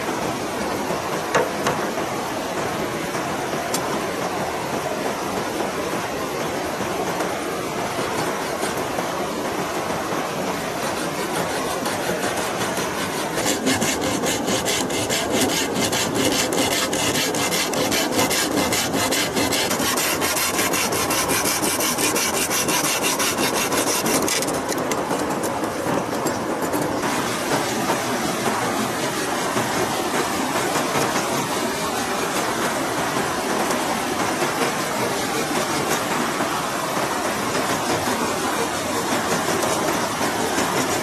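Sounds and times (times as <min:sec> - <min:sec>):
river rapids rushing: 0:05.2 - 0:25.2
hand saw cutting bamboo: 0:10.9 - 0:25.0.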